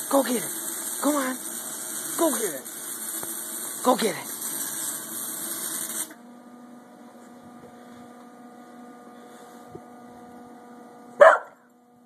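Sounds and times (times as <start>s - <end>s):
loud hiss: 0.0s - 6.2s
welding machine mains hum: 0.0s - 12.0s.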